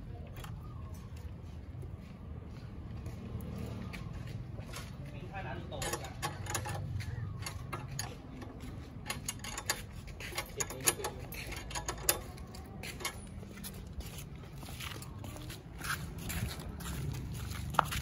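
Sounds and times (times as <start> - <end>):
metal tools clicking on bolts: 5.6 - 13.9.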